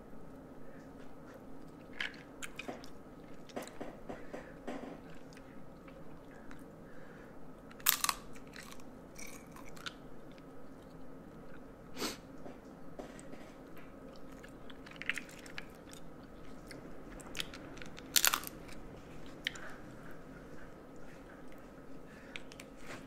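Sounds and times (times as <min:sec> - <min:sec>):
wet chewing: 0:07.6 - 0:11.7, 0:13.2 - 0:22.8
crab shell cracking: 0:07.7 - 0:10.0, 0:17.4 - 0:18.7.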